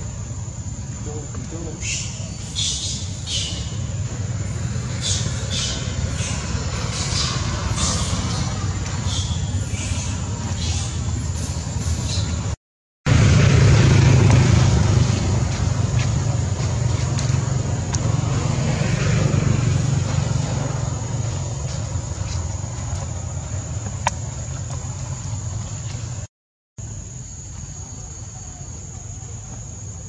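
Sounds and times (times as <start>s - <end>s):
vehicle engine running: 3.3s - 10.8s, 13.1s - 26.3s.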